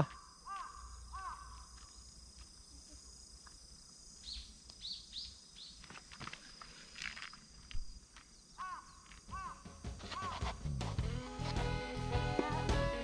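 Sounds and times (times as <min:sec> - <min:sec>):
high insect drone: 0:00.0 - 0:13.0
bird chirps: 0:04.2 - 0:10.4.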